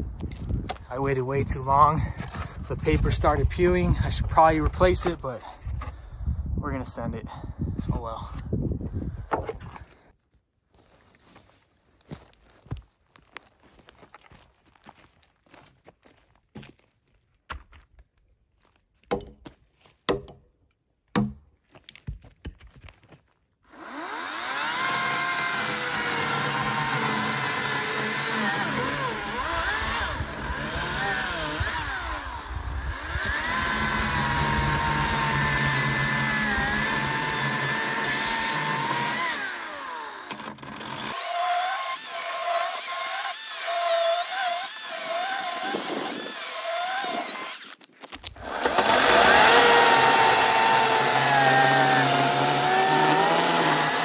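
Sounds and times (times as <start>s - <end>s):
electric chainsaw cutting log: 23.7s - 54.0s.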